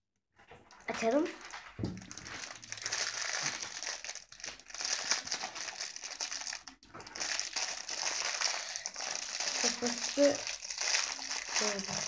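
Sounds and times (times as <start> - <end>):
plastic bag crinkling: 0.6 - 12.0
plastic wrapper tearing: 0.7 - 12.0.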